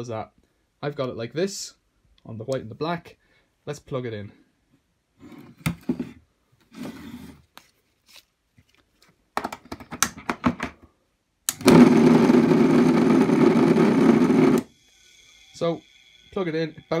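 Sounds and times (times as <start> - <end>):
electric motor buzzing rattle: 11.6 - 17.0.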